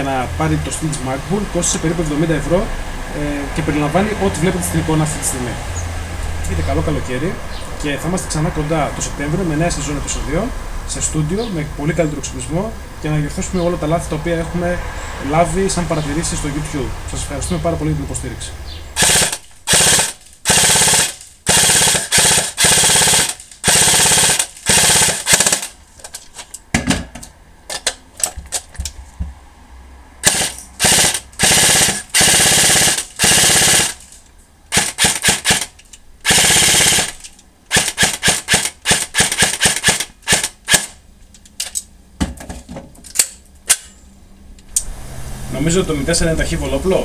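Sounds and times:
airsoft gun firing bursts: 19.0 - 25.7, 30.2 - 34.0, 34.7 - 41.0.

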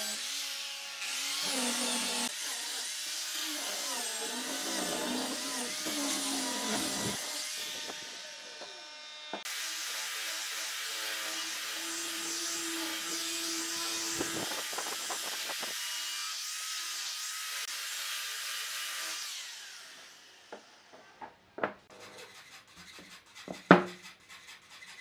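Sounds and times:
die grinder sanding wood: 0.0 - 20.1, 21.9 - 25.0
wooden boards knocking on bench: 21.2 - 21.8, 23.7 - 24.0.

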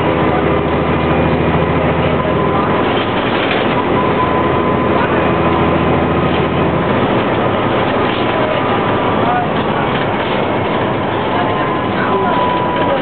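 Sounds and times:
bus diesel engine running: 0.0 - 13.0
road noise: 0.0 - 13.0.

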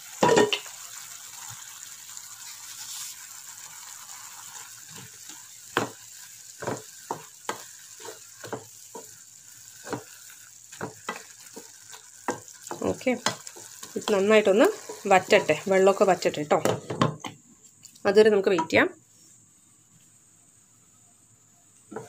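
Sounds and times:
curry simmering hiss: 0.0 - 22.0
spatula scraping a pan: 4.8 - 17.0.

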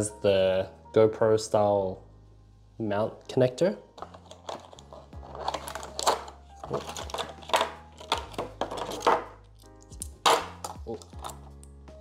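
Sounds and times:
soft background music: 0.0 - 12.0
plastic tripod scraping and rustling: 4.0 - 9.4.

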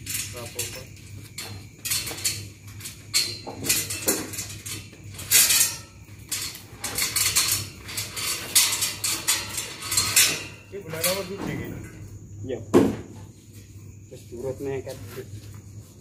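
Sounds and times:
metallic clinking and clattering: 0.0 - 12.0.

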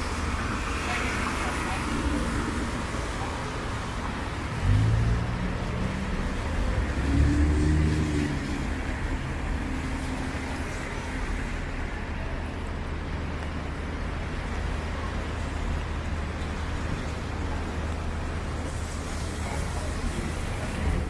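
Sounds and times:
car engines rumbling: 0.0 - 21.0
tyres hissing on wet road: 0.0 - 21.0.

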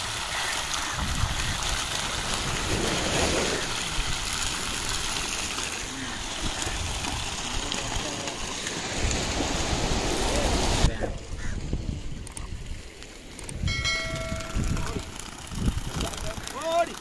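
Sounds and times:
wind buffeting microphone: 0.0 - 5.2, 8.9 - 16.6
surf washing on beach: 0.0 - 17.0.

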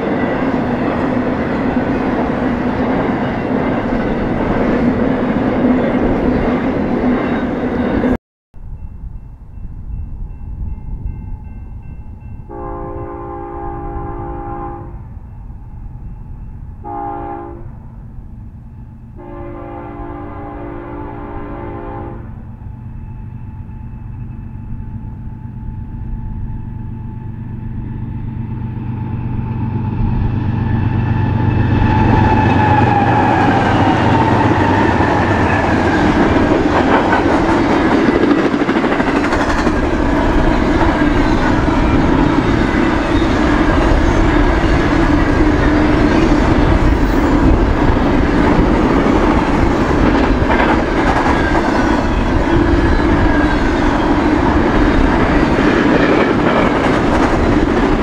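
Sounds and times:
train wheel and rail noise: 0.0 - 58.0
locomotive air horn blasts: 12.5 - 15.1, 16.8 - 17.8, 19.2 - 22.5.

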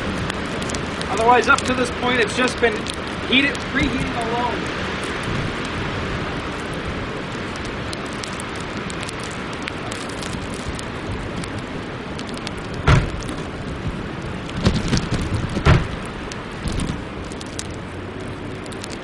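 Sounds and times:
wind and sleet hissing: 0.0 - 19.0
sleet ticking: 0.1 - 4.6
car hatch thumping shut: 12.8 - 13.2, 15.6 - 16.0.

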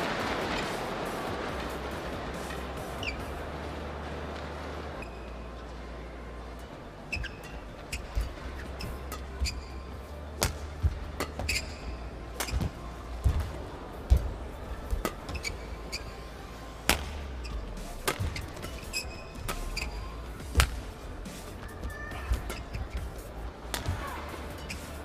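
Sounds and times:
low hum in hall: 0.0 - 25.0
shoes squeaking on court: 2.4 - 3.6, 7.1 - 16.4, 17.3 - 23.2, 23.8 - 25.0
racket striking shuttlecock: 10.4 - 14.3, 16.8 - 17.3, 18.0 - 19.9, 20.5 - 20.8.

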